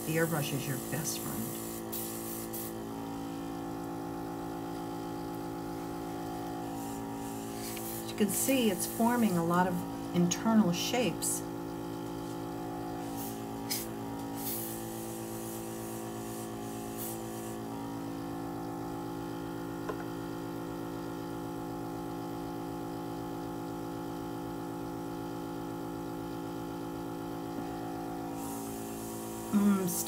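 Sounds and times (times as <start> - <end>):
airbrush air hisses: 0.0 - 2.8, 6.7 - 9.6, 13.0 - 17.6, 28.3 - 30.0
compressor humming: 0.0 - 30.0.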